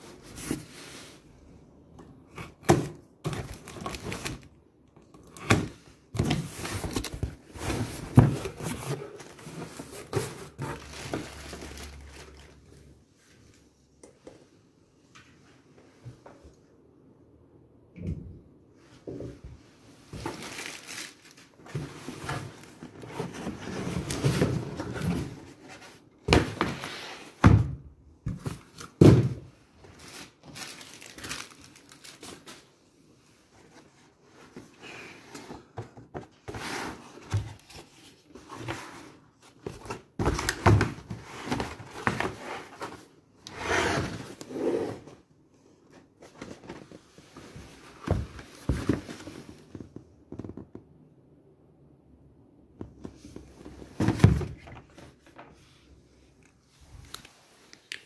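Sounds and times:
cardboard scraping and rustling: 5.4s - 12.6s, 20.1s - 27.4s, 33.6s - 45.2s.

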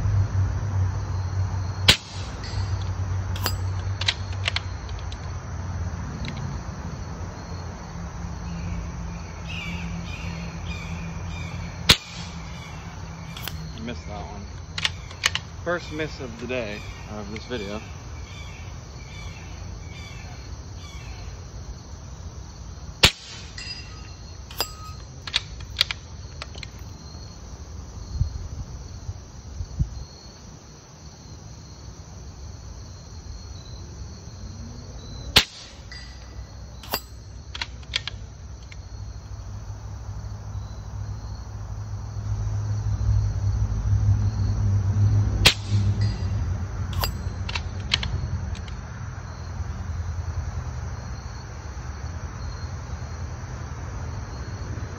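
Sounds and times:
insects chirping: 0.0s - 54.9s
air rifle shot crack: 1.9s - 2.5s, 11.9s - 12.6s, 23.0s - 23.6s, 35.4s - 35.9s, 45.4s - 46.1s.

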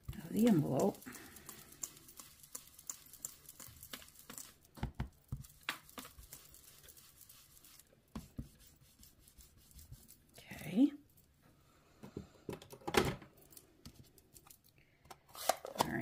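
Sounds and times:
brush bristles patter on paper: 0.0s - 11.3s.

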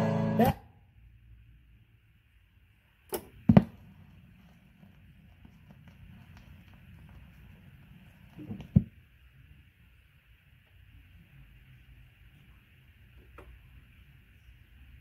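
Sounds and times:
record surface crackle: 3.1s - 9.5s.

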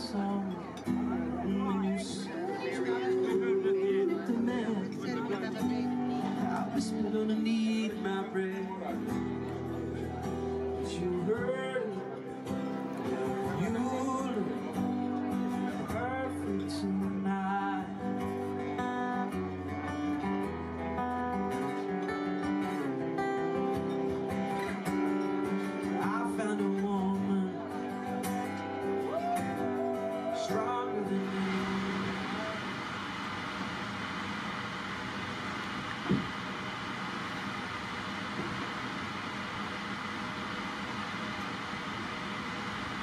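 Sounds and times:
person singing: 0.0s - 9.3s, 10.0s - 19.2s, 29.0s - 32.8s
acoustic guitar music: 0.0s - 43.0s.

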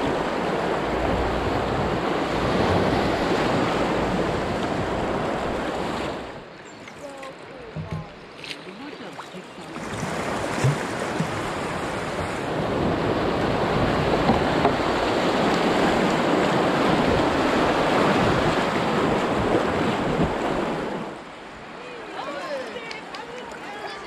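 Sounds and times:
whitewater rushing: 0.0s - 6.0s.

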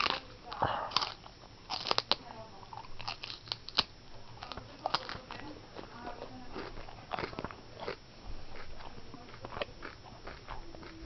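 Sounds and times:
tortoise crunching clicks: 0.0s - 8.0s.

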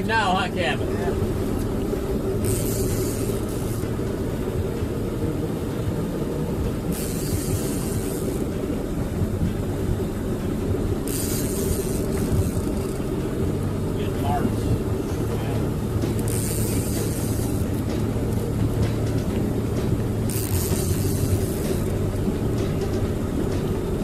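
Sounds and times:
boat motor droning: 0.0s - 24.0s.

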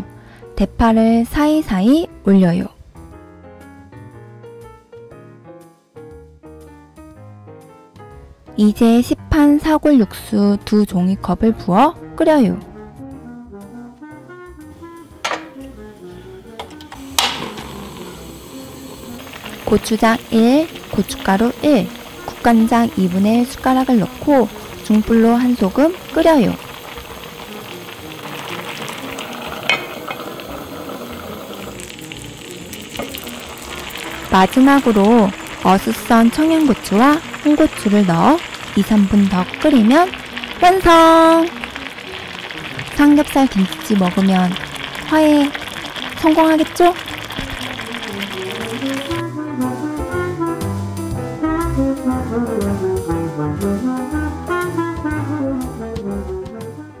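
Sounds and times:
stew bubbling in a pot: 17.0s - 49.3s
music with walking bass: 43.8s - 57.0s.

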